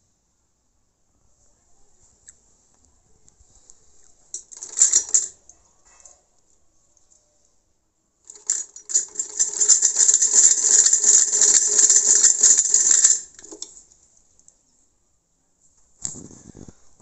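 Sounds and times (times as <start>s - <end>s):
sewing machine clatter: 4.4s - 5.4s, 8.3s - 13.8s.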